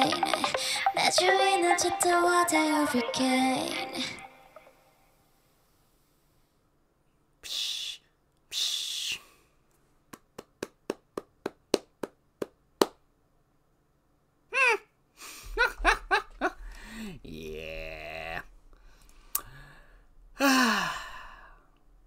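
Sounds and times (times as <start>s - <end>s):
hands clapping: 10.1s - 13.0s
man laughing: 15.5s - 16.6s
man breathing out hard: 16.6s - 17.2s, 18.8s - 21.7s.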